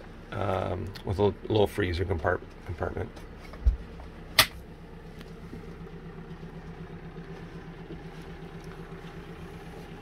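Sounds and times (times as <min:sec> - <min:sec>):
low mechanical hum: 0:00.0 - 0:10.0
sharp click: 0:04.4 - 0:04.6.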